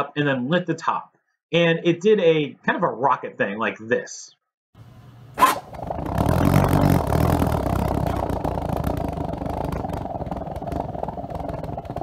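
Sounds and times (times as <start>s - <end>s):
alcohol vapour burning rumble: 5.6s - 12.0s.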